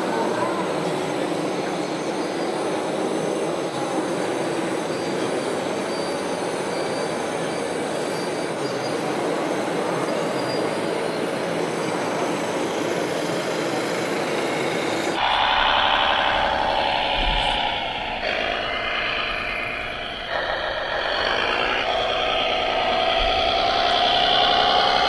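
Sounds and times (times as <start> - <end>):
grinding mechanical noise: 0.0 - 25.0
electric motor whine: 11.9 - 25.0.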